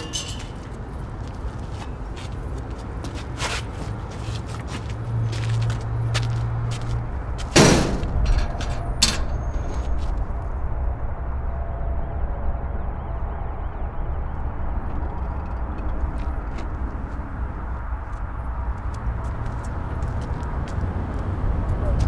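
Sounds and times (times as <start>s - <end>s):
low outdoor rumble: 0.0s - 22.0s
heavy door banging: 7.4s - 10.2s.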